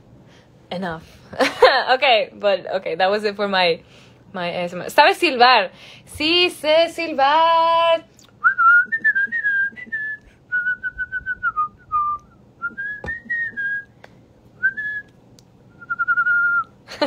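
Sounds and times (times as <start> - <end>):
woman whistling: 8.4 - 13.9, 14.6 - 15.1, 15.7 - 16.8.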